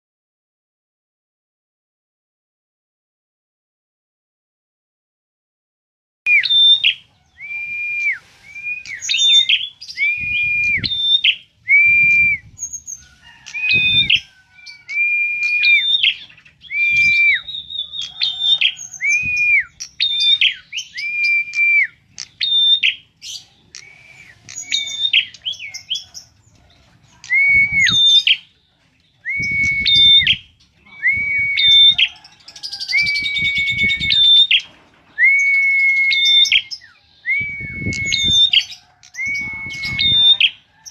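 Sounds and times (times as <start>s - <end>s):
bird calling shrilly: 6.3s - 26.2s, 29.3s - 40.9s.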